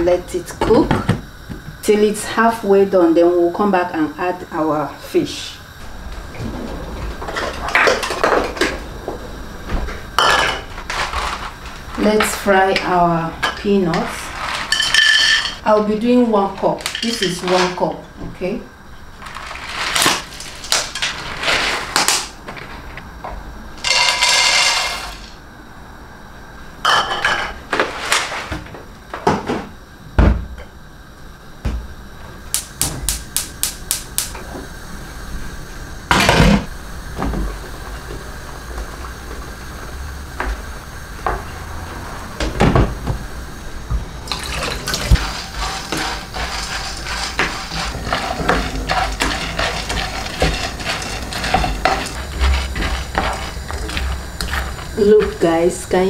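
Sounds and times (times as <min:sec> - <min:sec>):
steady hiss: 0:00.0 - 0:56.0
peanuts poured into metal pan: 0:23.8 - 0:25.3, 0:45.0 - 0:55.4
gas stove igniter clicking: 0:32.5 - 0:34.4
peanuts scraped around pan: 0:45.0 - 0:55.5.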